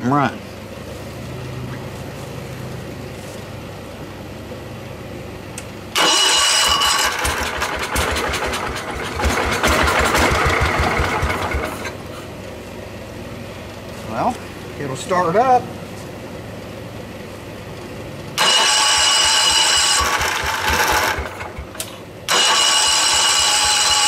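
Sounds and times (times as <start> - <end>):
small engine cranking and running: 6.0 - 12.0, 18.4 - 24.0.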